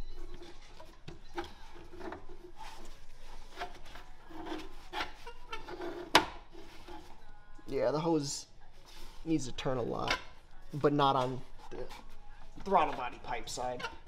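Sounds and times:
rubber hose scraping on pipe: 0.2s - 7.2s.

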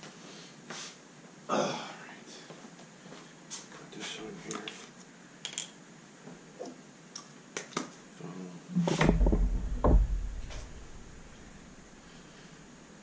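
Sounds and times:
metal clatter with low thud: 8.9s - 11.9s.

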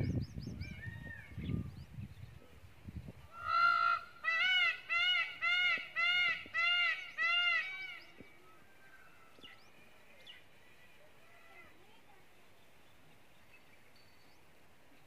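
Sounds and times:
peafowl calling: 3.3s - 8.0s.

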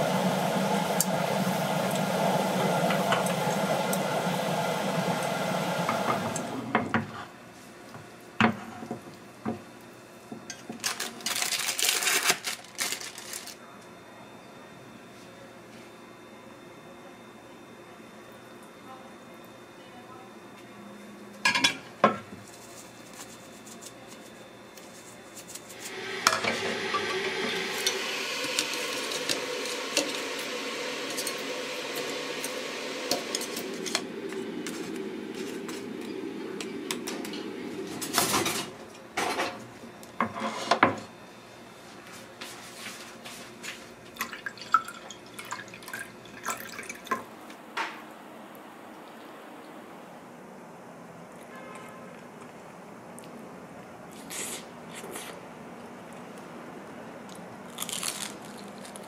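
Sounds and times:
dumplings sizzling in pan: 25.8s - 34.0s.

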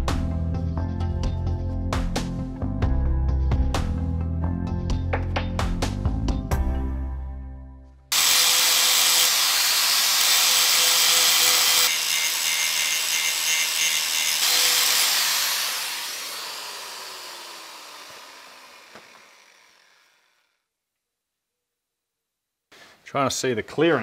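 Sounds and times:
angle grinder grinding metal: 8.1s - 20.6s.

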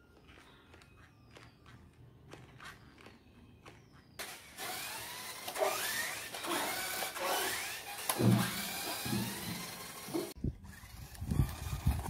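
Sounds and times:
small electric motor whirring: 4.2s - 12.0s
thump: 8.2s - 9.6s.

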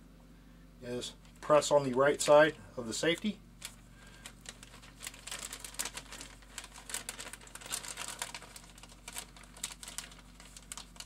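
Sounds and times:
plastic bag crinkling: 3.0s - 11.0s.

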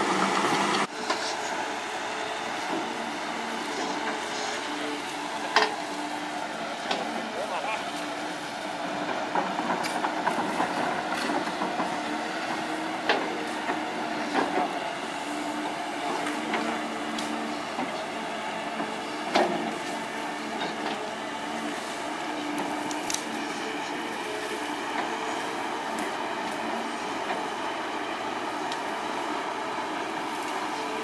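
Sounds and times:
excavator diesel engine drone: 0.0s - 31.0s.

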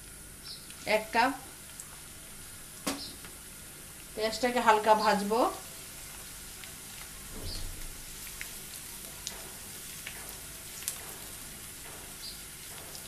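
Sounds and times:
onions sizzling in hot oil: 0.6s - 13.0s
small crackles: 1.6s - 2.0s, 8.2s - 11.3s.

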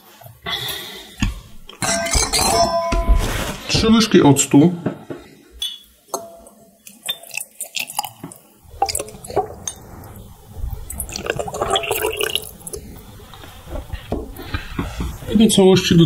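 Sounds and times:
metal spoon clinking on glass: 1.8s - 3.0s, 5.6s - 6.5s
liquid dripping and trickling: 6.8s - 13.5s.

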